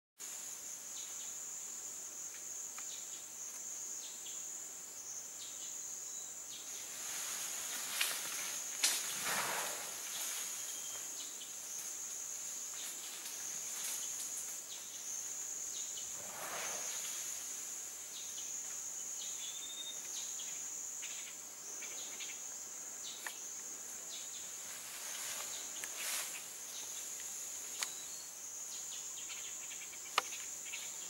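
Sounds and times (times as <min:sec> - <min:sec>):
insects droning: 0:00.2 - 0:31.0
rustling: 0:06.7 - 0:11.1.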